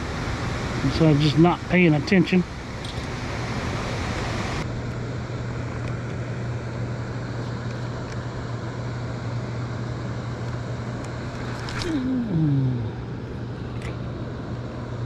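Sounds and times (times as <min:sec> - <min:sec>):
wind and water rushing: 0:00.0 - 0:04.7
boat motor humming: 0:00.0 - 0:15.0.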